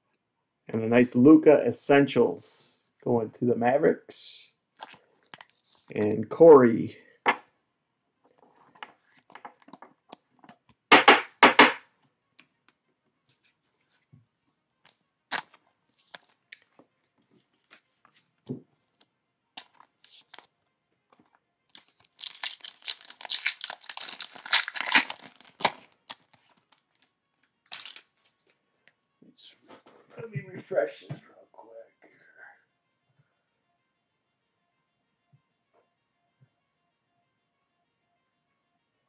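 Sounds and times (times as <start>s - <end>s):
foil wrapper tearing and crinkling: 4.8s - 5.8s, 15.3s - 16.4s, 19.6s - 20.5s, 21.7s - 27.0s, 27.7s - 28.1s.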